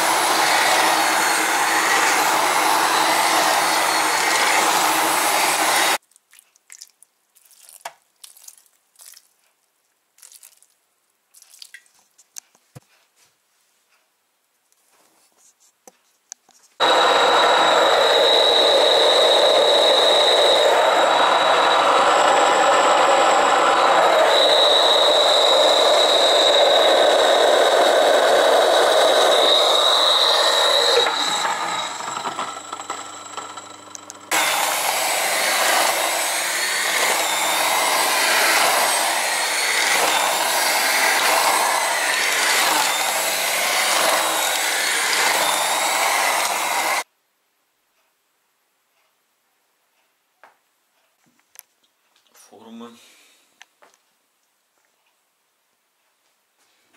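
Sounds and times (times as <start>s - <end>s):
electric hand mixer whining: 0.0s - 6.0s, 16.8s - 47.1s.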